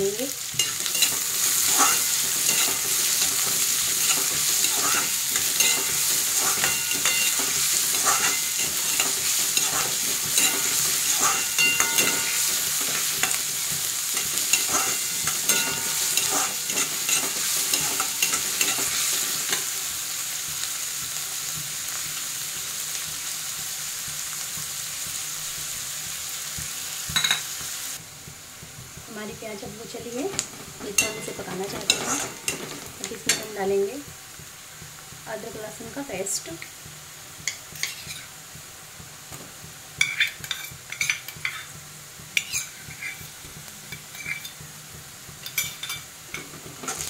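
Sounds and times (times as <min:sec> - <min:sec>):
onions sizzling in hot oil: 0:00.0 - 0:47.0
metal spatula scraping a pan: 0:00.6 - 0:19.8, 0:30.3 - 0:33.6, 0:37.7 - 0:38.3, 0:40.0 - 0:41.8, 0:42.4 - 0:44.6, 0:45.4 - 0:47.0.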